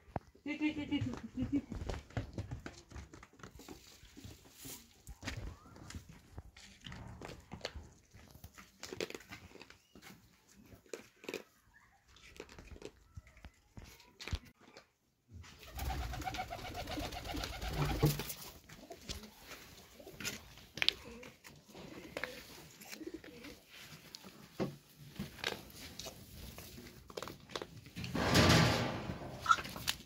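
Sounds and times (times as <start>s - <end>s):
pigeon cooing: 20.0s - 23.9s.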